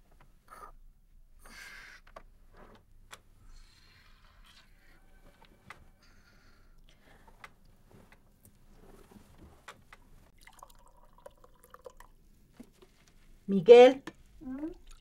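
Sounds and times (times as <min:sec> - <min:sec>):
liquid pouring into a cup: 0:10.3 - 0:12.2.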